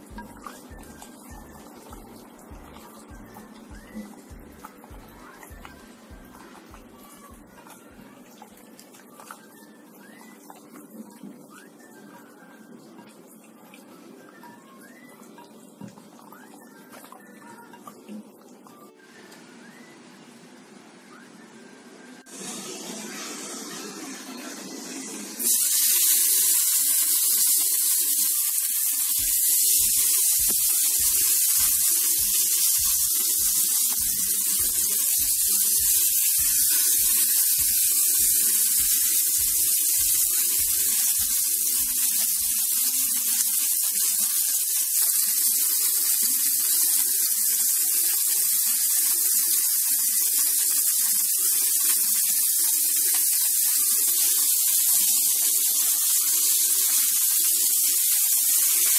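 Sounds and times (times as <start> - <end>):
steak sizzling in hot oil: 0.0 - 8.2, 22.3 - 58.9.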